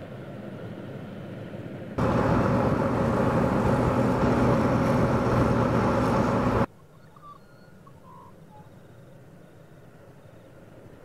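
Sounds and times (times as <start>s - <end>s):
road and wind rush: 0.0s - 6.7s
truck engine drone: 0.0s - 6.7s.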